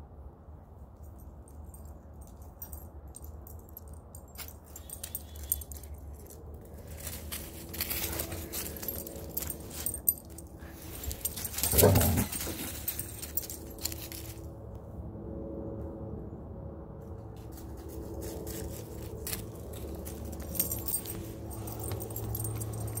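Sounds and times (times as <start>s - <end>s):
dog collar tags jingling: 1.0s - 14.4s, 18.5s - 23.0s
rustling: 4.4s - 14.5s.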